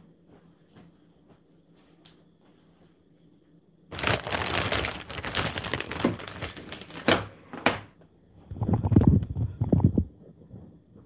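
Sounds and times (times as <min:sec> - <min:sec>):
plastic bag crinkling: 0:03.9 - 0:07.4.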